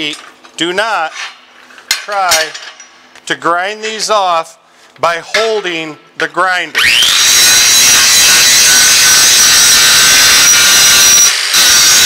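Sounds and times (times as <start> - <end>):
angle grinder grinding steel: 6.8 - 12.0.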